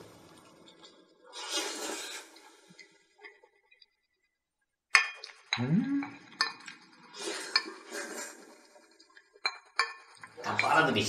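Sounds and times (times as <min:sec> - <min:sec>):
person slurping: 0:01.3 - 0:02.8, 0:07.0 - 0:08.7
person humming: 0:05.6 - 0:06.2.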